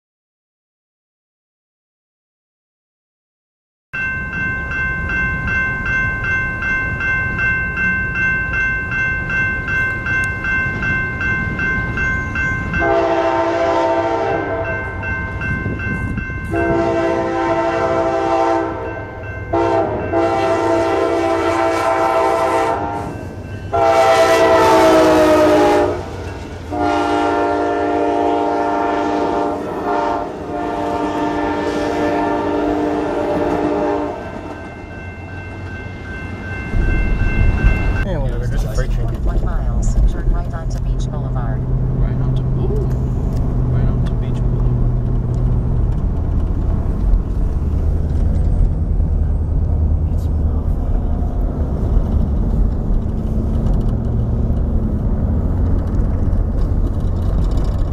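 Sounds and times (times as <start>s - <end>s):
crossing warning bells ringing: 4.0s - 45.8s
train rumbling: 4.0s - 57.9s
train chord horn blasts: 12.7s - 15.1s, 16.4s - 34.6s.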